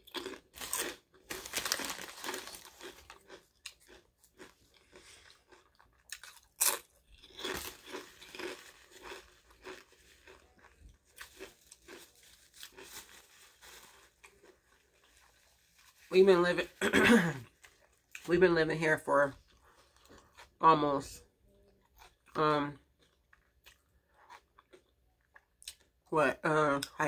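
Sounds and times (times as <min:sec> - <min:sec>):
chewing crunchy chips: 0:00.0 - 0:16.0, 0:17.4 - 0:18.3, 0:19.3 - 0:20.6, 0:21.6 - 0:26.0.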